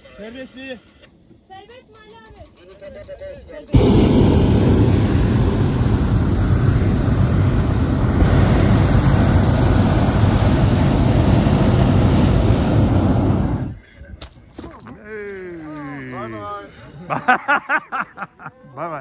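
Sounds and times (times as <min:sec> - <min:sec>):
propane burner blast: 0:03.7 - 0:13.8.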